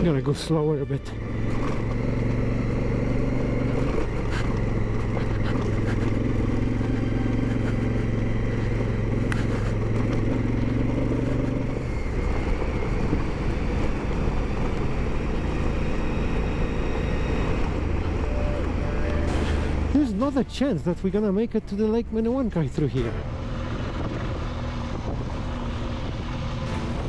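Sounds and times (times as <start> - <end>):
motorcycle engine running: 0.0 - 27.0
road rumble: 0.0 - 27.0
wind: 0.0 - 27.0.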